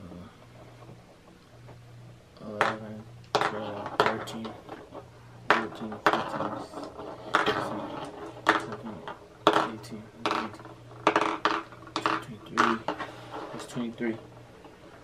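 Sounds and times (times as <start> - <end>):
candies tapping on tabletop: 8.4 - 13.0.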